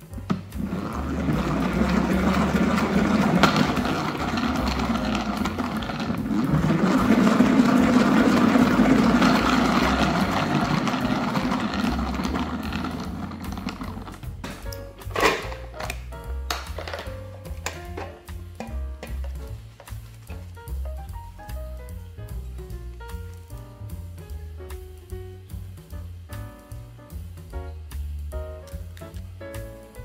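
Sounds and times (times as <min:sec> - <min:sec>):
salad spinner whirring: 0:00.6 - 0:14.4.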